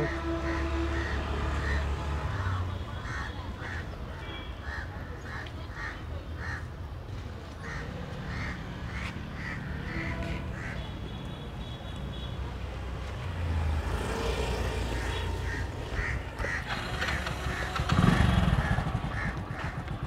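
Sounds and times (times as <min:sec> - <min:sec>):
crows cawing: 0:00.0 - 0:04.0, 0:04.6 - 0:06.7, 0:07.6 - 0:10.9, 0:14.9 - 0:20.0.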